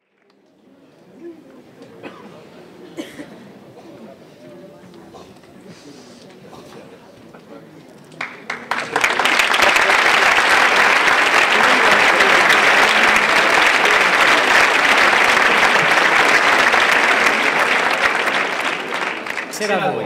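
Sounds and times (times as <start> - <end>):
audience applauding: 8.2 - 20.0.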